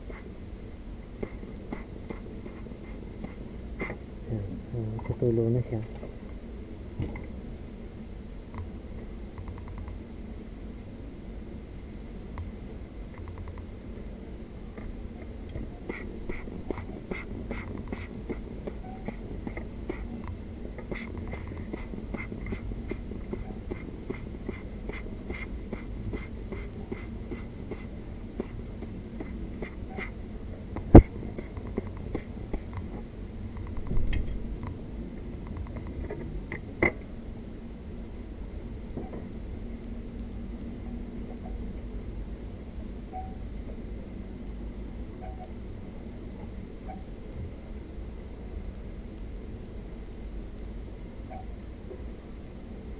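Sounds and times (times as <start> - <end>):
brush scrubbing circuit board: 0.0 - 0.5, 1.2 - 4.2, 9.5 - 10.9, 11.6 - 13.6, 15.8 - 32.9.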